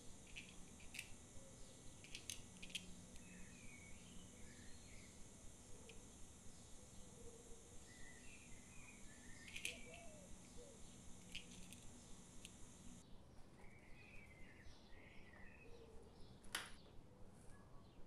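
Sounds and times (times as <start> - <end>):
soft clicks of objects handled: 2.0 - 3.3, 9.4 - 10.6
faint bird chirps: 2.7 - 16.4.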